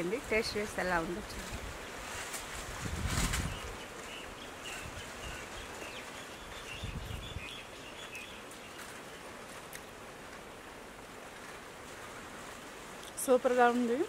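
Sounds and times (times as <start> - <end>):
steady outdoor hiss: 0.0 - 14.0
birds chirping: 3.3 - 9.4.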